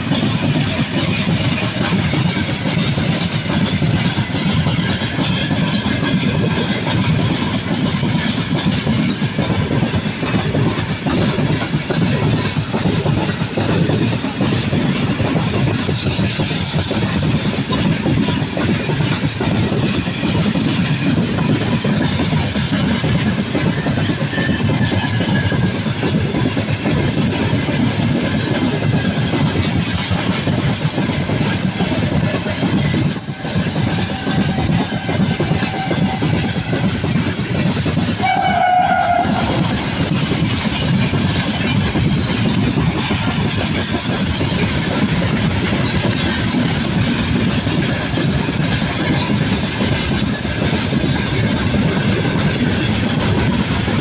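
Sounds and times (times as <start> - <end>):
freight train rumble and wheel clatter: 0.0 - 54.0
train horn blast: 38.2 - 39.6.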